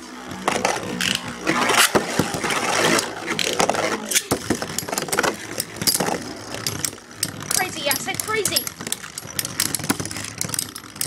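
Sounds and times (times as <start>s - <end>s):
spinning tops whirring and scraping: 0.0s - 11.0s
spinning tops clacking together: 3.4s - 11.0s.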